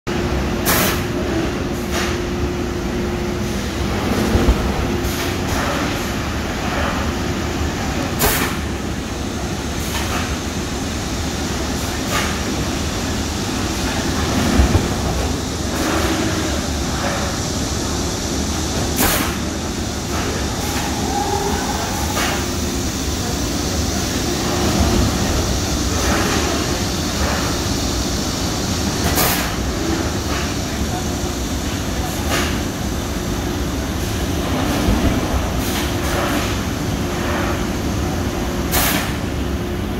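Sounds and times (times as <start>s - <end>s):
machine rumble and hum: 0.1s - 39.9s.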